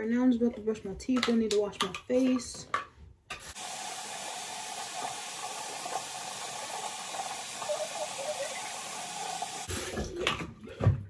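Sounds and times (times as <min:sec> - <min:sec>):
tap water running: 0:03.3 - 0:09.9.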